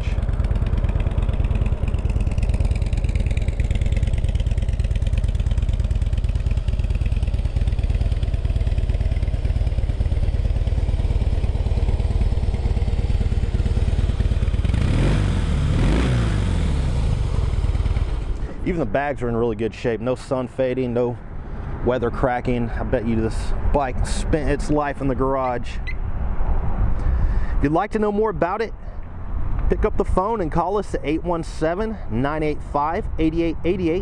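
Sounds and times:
motorcycle engine idling: 0.0s - 18.6s.

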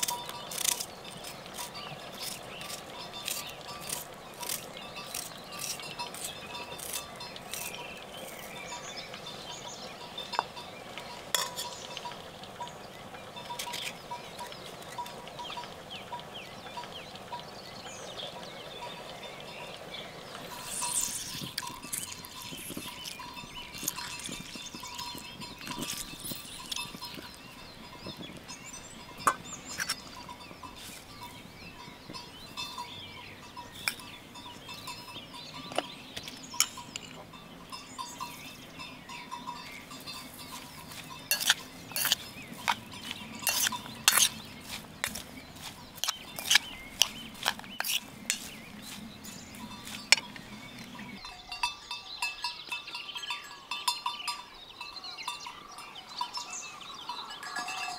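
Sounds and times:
salad mixed in a bowl: 40.8s - 50.4s.

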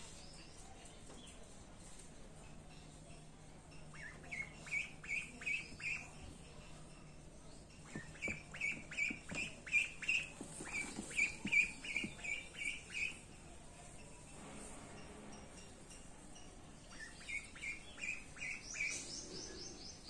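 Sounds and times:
duckling peeping: 3.8s - 6.5s, 7.7s - 13.3s, 16.9s - 19.3s.

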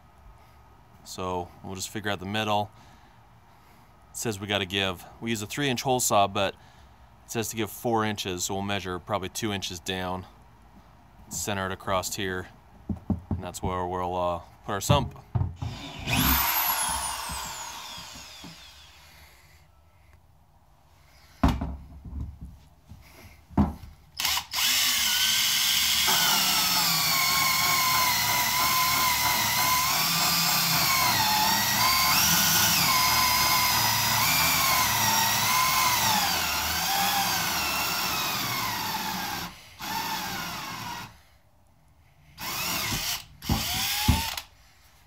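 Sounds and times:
power drill cutting with hole saw: 15.6s - 19.3s, 24.2s - 41.2s, 42.4s - 44.5s.

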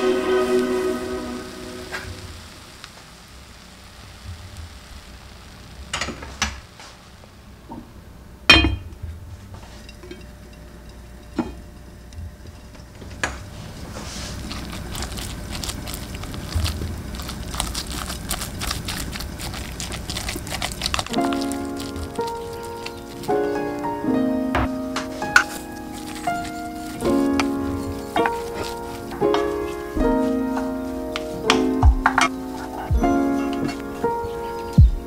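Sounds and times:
utensils clinking against a pan: 9.8s - 11.6s.

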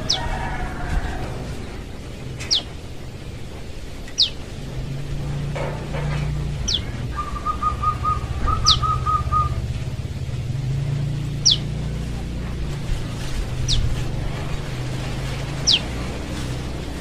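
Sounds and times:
low steady hum: 0.0s - 17.0s
young bird calling: 2.4s - 2.7s, 4.1s - 4.5s, 6.6s - 9.7s, 11.4s - 11.8s, 13.6s - 14.0s, 15.5s - 15.9s
rapid whistled notes: 6.7s - 9.7s.

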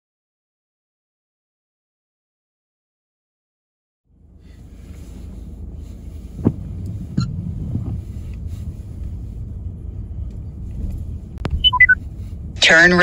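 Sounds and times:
car cabin road rumble: 4.1s - 13.0s.

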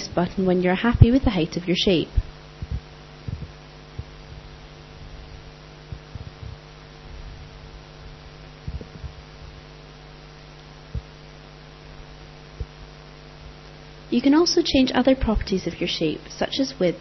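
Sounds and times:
faint low thumps: 0.0s - 9.8s, 10.7s - 11.3s, 11.9s - 13.6s
steady electrical hum: 0.0s - 17.0s.

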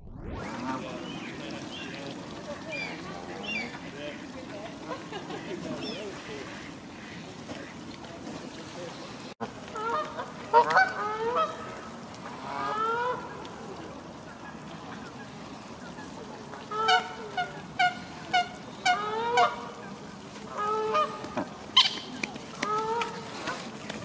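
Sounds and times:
geese honking: 9.7s - 13.5s, 14.1s - 23.2s.

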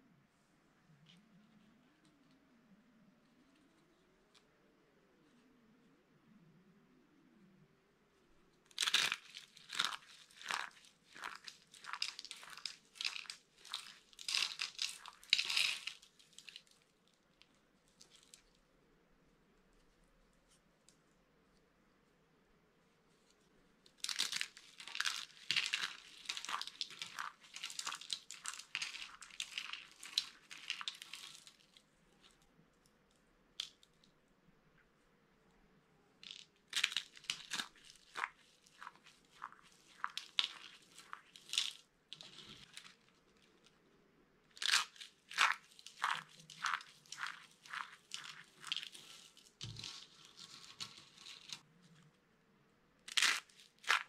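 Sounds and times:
hands crushing dry soap: 8.7s - 18.6s, 23.9s - 32.5s, 36.2s - 43.8s, 44.5s - 52.0s, 53.0s - 54.0s.

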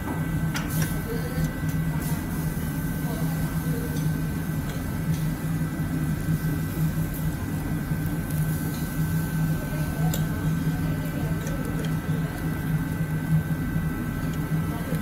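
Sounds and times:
low room hum: 0.0s - 15.0s
meat sizzling on charcoal grill: 0.2s - 15.0s
fat crackling: 6.2s - 15.0s.

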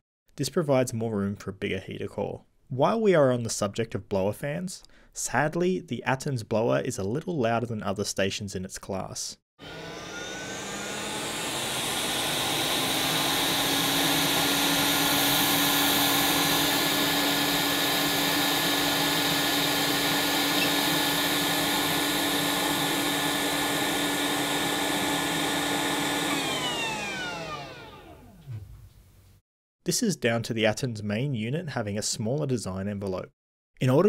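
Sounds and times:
fan spinning down: 9.6s - 28.9s
blower fan rushing air and whine: 9.7s - 28.4s.

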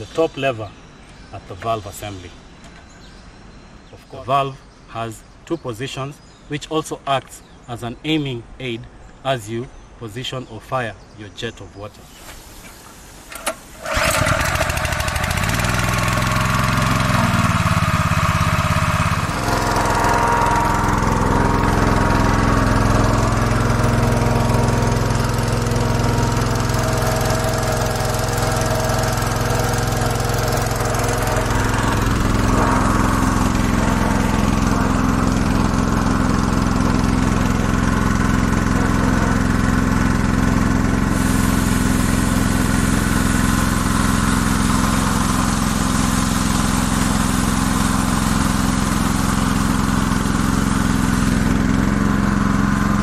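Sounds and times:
small petrol pump engine running: 13.4s - 53.0s.

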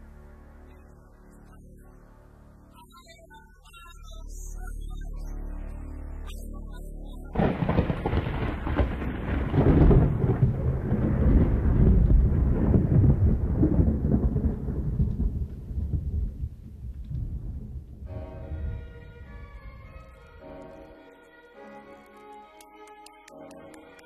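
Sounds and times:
thunder crash and rumble: 7.4s - 18.8s.

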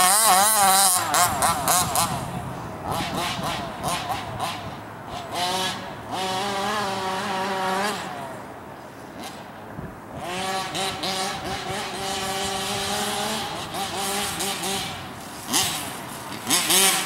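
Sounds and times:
small two-stroke engine revving: 0.0s - 17.0s.

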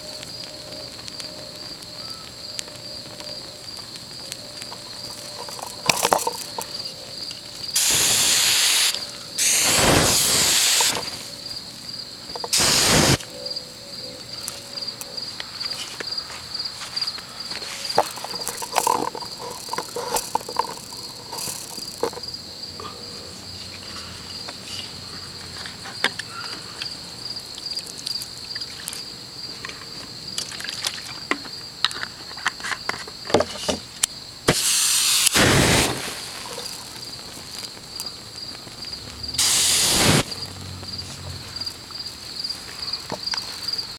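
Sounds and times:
crickets chirping: 0.0s - 43.9s
small clicks and crackles: 0.1s - 13.4s, 17.0s - 22.4s, 25.5s - 33.2s, 35.3s - 39.6s, 40.2s - 43.9s
flame jet hissing: 2.3s - 13.4s, 14.4s - 22.5s, 34.4s - 43.9s.

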